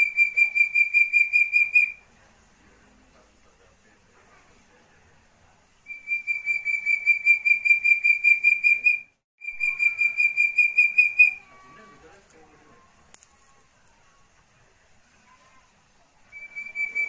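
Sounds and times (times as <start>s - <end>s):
partridge whistled calls: 0.0s - 2.0s, 5.9s - 12.0s, 16.3s - 17.0s.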